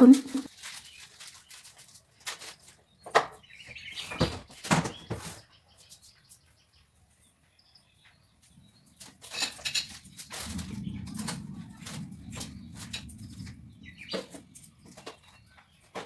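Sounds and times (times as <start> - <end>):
low hum: 10.1 - 15.6.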